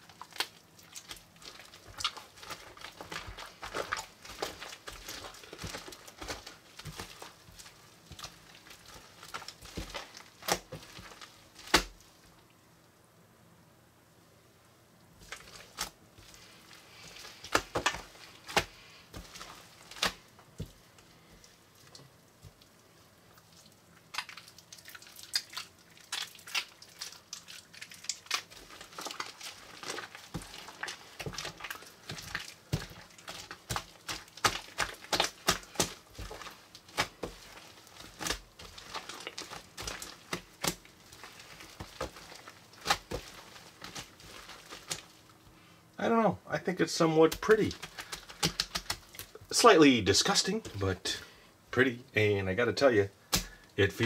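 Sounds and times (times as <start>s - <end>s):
slime crackling and popping: 0.0s - 12.1s, 15.2s - 21.5s, 23.4s - 45.5s, 47.2s - 49.6s, 53.3s - 53.6s.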